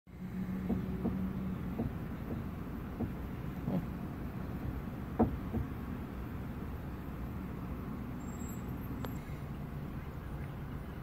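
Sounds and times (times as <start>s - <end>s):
truck cab rumble: 0.1s - 11.0s
soft knocks: 0.5s - 3.3s, 5.1s - 5.8s.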